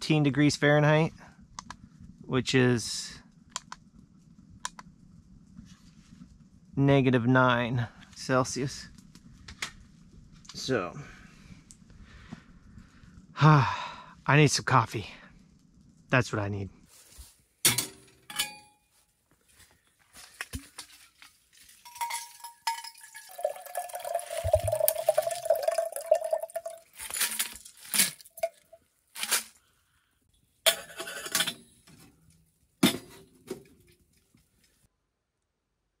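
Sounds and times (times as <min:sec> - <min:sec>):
metal kettle clinking and knocking: 0:21.8 - 0:26.8
water pouring into kettle: 0:21.9 - 0:27.6.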